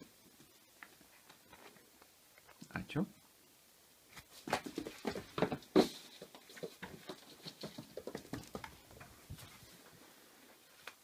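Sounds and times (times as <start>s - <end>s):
puppy paws skittering on wooden floor: 4.2s - 9.8s.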